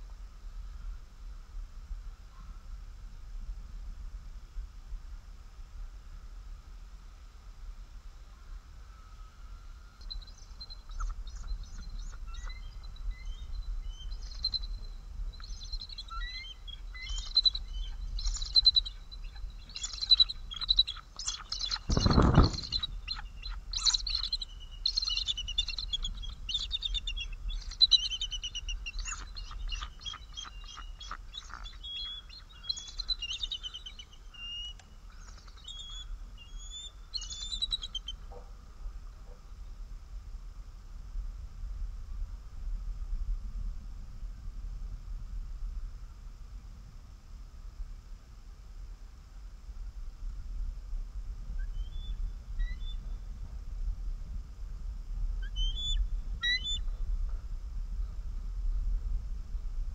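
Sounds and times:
eagles chittering calls: 15.4 - 38.2, 55.5 - 56.8.

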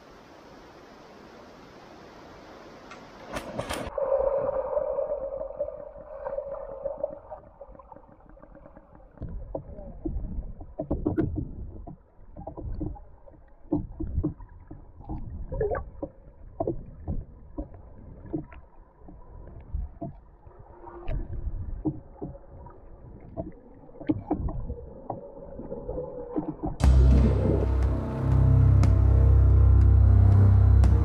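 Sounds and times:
muffled underwater hum: 3.9 - 31.0
underwater knocks and gurgles: 6.0 - 27.7.

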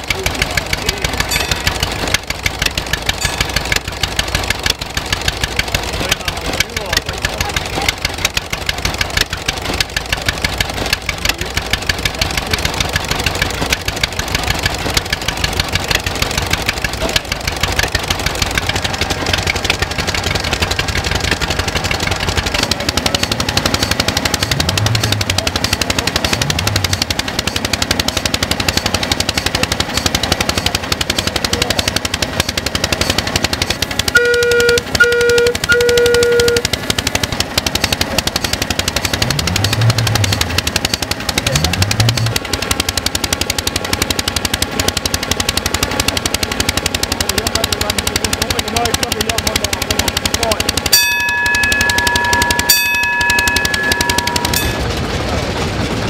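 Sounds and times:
small stationary engine running: 0.0 - 56.0
short toots: 34.1 - 36.7.

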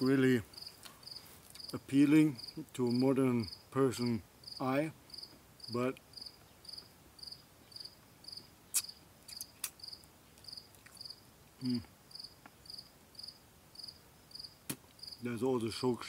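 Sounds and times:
cricket chirping: 0.5 - 1.7, 2.4 - 3.6, 4.4 - 15.2
man murmuring: 11.6 - 11.9.

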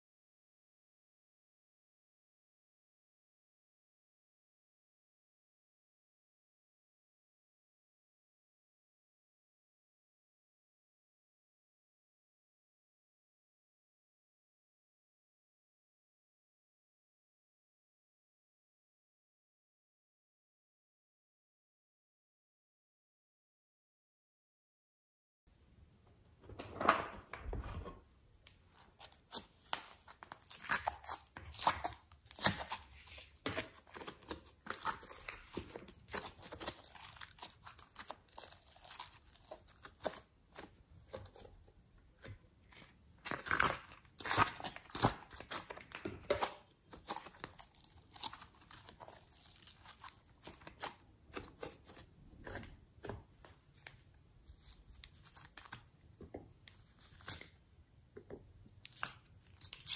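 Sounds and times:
slime crackling and tearing: 29.1 - 41.4, 43.3 - 52.6, 58.8 - 59.9.

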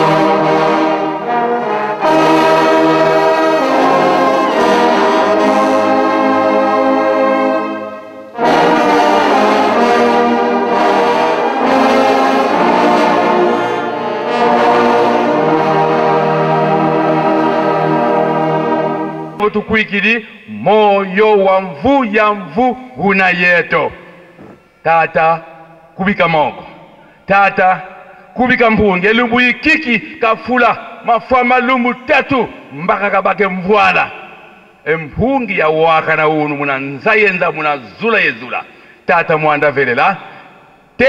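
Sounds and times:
brass band playing chords: 0.0 - 27.2.

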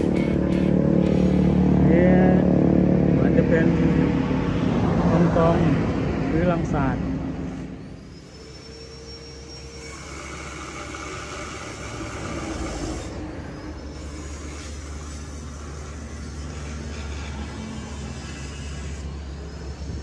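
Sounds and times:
vehicle engine drone: 0.0 - 20.0.

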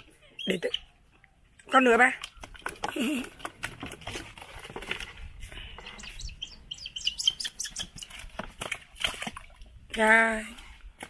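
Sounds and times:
splashing in water: 1.8 - 5.1, 7.0 - 10.2
bird flapping wet wings: 2.2 - 4.5, 7.7 - 9.7.

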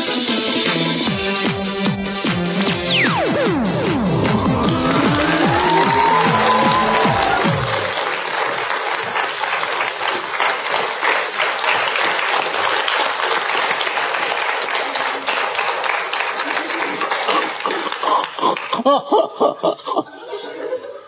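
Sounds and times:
audience applauding: 2.9 - 18.9.

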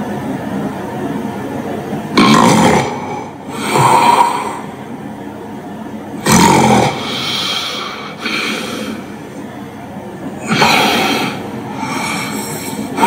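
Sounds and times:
person snoring with snorts: 6.2 - 9.0, 10.4 - 13.0
gasping breaths: 10.4 - 13.0.

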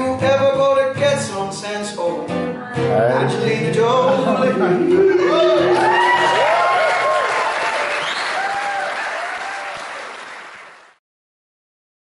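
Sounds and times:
people cheering: 3.0 - 11.0
audience applauding: 4.9 - 11.0.

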